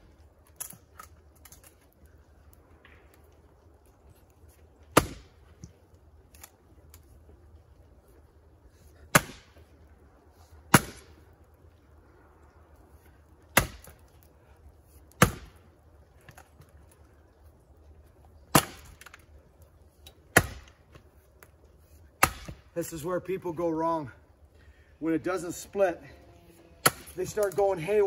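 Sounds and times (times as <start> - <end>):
axe chopping wood: 4.9 - 5.3, 9.1 - 9.6, 10.7 - 11.1, 13.5 - 14.0, 15.2 - 15.6, 18.5 - 19.2, 20.3 - 20.8, 22.2 - 22.6, 26.8 - 27.6.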